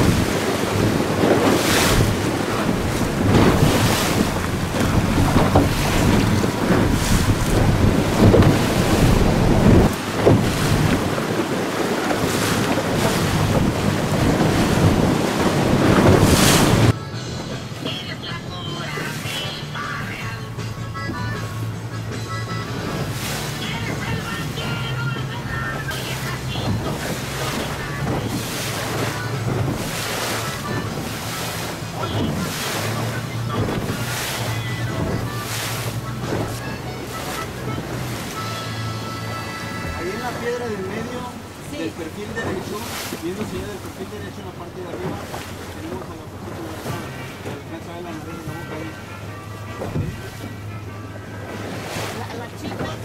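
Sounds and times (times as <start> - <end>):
wind buffeting microphone: 0.0 - 17.0, 22.8 - 38.4
boat engine humming: 0.0 - 53.0
choppy seawater splashing: 0.0 - 53.0.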